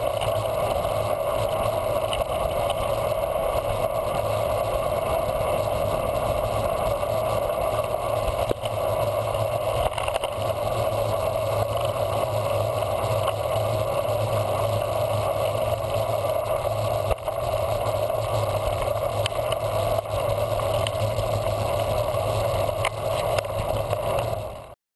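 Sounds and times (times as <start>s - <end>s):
wind and road noise: 0.0s - 24.8s.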